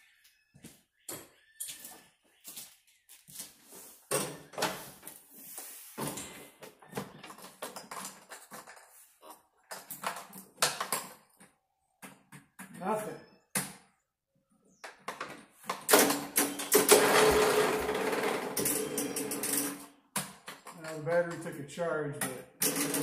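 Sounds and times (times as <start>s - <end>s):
knocks and scuffs: 0.1s - 3.8s.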